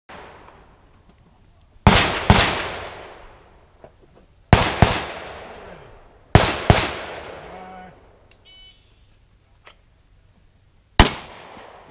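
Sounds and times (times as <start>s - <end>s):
pistol shots with echo: 1.8s - 3.2s, 4.5s - 7.9s, 11.0s - 11.9s.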